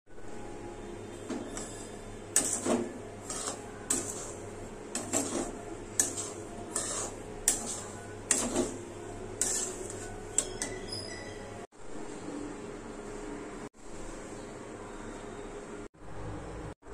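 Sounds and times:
spatula scraping semolina in pan: 1.2 - 11.6.

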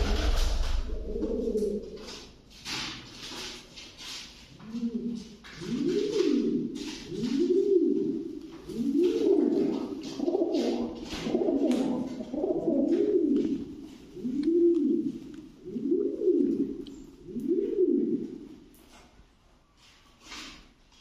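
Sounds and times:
pigeons cooing: 0.0 - 2.3, 4.6 - 18.7.

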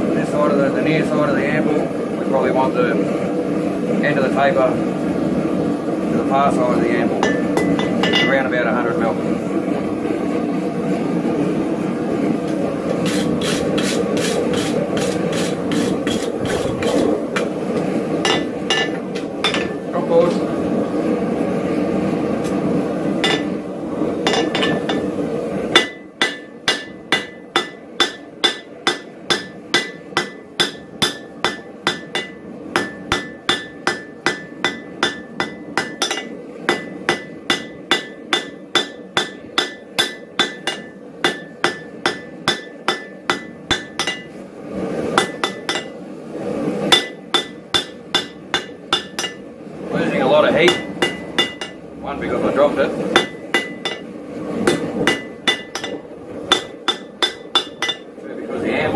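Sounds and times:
steady rushing noise: 0.0 - 58.9
hammer striking steel on anvil: 7.2 - 8.4, 13.0 - 17.5, 18.2 - 19.8, 23.2 - 23.6, 24.2 - 25.1, 25.7 - 44.4, 45.2 - 46.0, 46.9 - 49.4, 50.7 - 51.8, 53.1 - 58.1.

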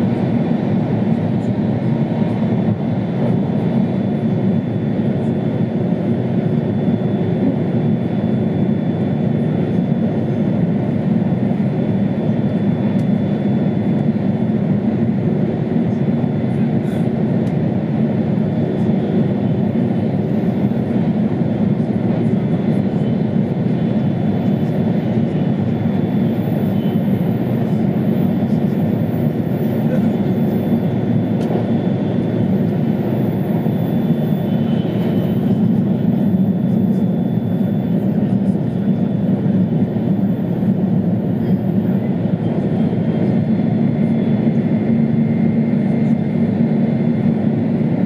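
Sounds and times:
faint high whine: 25.1 - 42.2.

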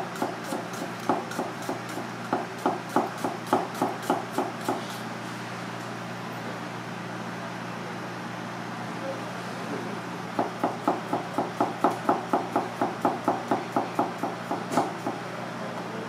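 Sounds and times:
knife chopping on cutting board: 0.1 - 4.9, 10.4 - 15.2.

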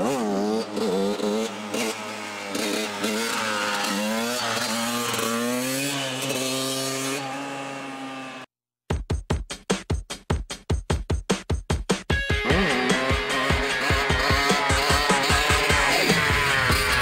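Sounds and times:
dirt bike engine revving: 0.0 - 8.5, 12.3 - 17.0.

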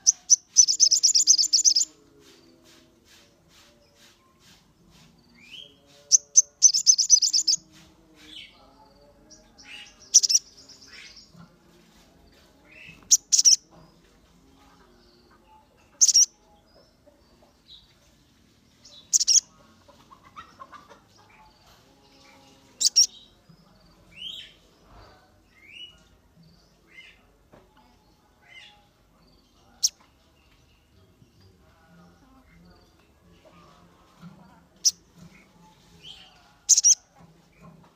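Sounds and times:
sunbird chirping: 0.0 - 2.0, 5.6 - 7.6, 10.0 - 11.2, 16.0 - 16.3, 19.0 - 19.4, 22.8 - 23.2, 36.7 - 37.0
buzzy bird trill: 0.1 - 1.9, 6.1 - 7.6, 10.1 - 10.7, 12.9 - 13.6, 16.0 - 16.3, 19.1 - 19.4, 22.8 - 23.2, 36.7 - 37.0.

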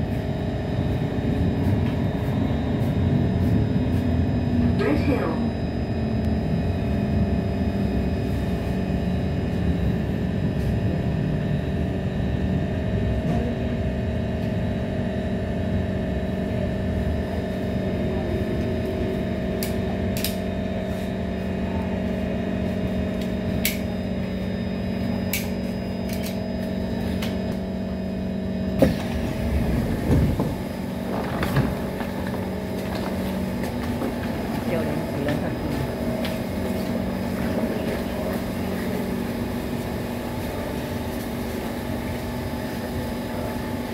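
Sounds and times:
metro car rumble and hum: 0.0 - 43.9
train doors clunk opening: 28.8 - 36.4.

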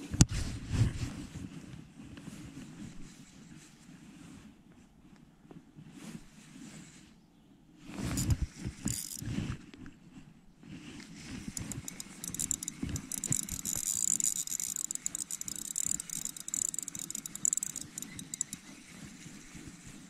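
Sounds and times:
fishing reel ticking: 8.1 - 9.3, 11.3 - 19.7.

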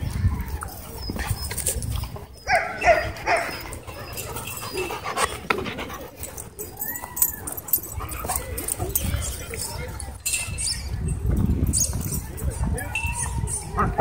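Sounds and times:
dogs yipping: 0.5 - 11.0.

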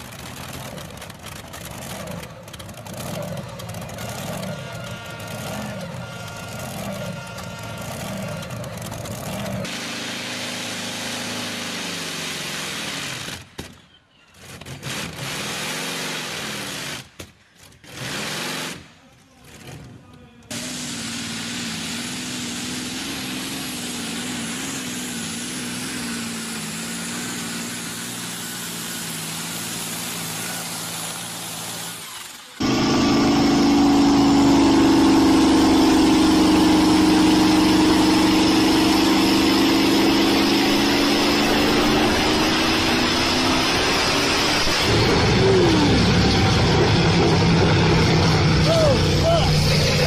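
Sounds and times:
tractor engine running under load: 0.0 - 9.7, 20.6 - 50.0
pickup engine at full throttle: 0.0 - 13.5, 20.5 - 50.0.

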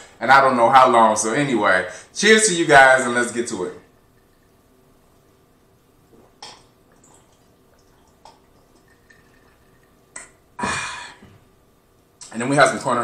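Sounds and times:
man gulping water: 5.6 - 11.6
man sighing ahh: 10.6 - 11.3.

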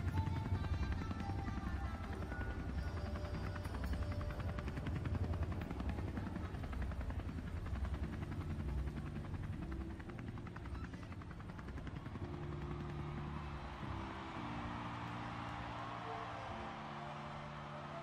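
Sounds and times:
helicopter rotor chopping: 0.0 - 18.0.

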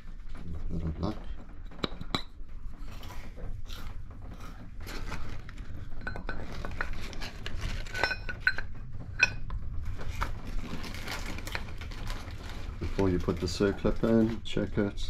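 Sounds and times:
low steady hum: 0.0 - 15.0
metal engine parts clinking: 5.9 - 9.5.

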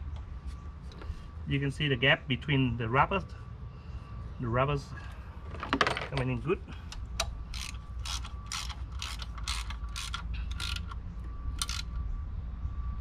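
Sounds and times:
ratchet wrench clicking: 7.5 - 11.0, 11.6 - 12.0.

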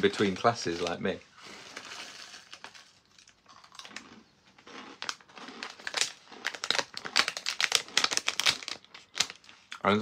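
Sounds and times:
snack bag crinkling: 0.0 - 9.8
crunchy snacks being chewed: 0.0 - 9.9.

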